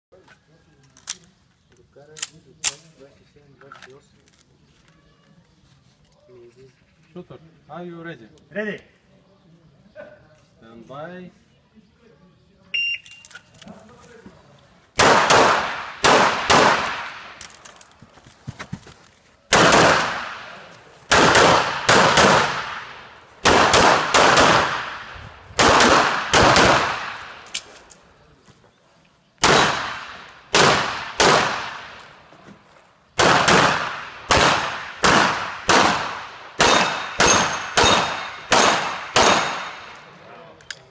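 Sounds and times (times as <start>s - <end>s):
pistol shots echoing: 15.0s - 17.4s, 19.5s - 27.6s, 29.4s - 32.0s, 33.2s - 40.1s.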